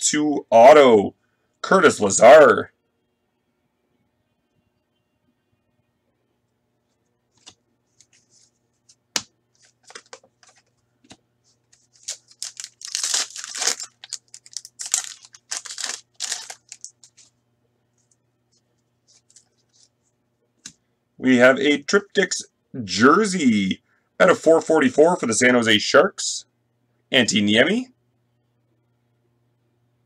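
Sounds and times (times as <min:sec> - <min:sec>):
card pack tearing and crinkling: 0:09.6 - 0:10.6, 0:11.7 - 0:17.3.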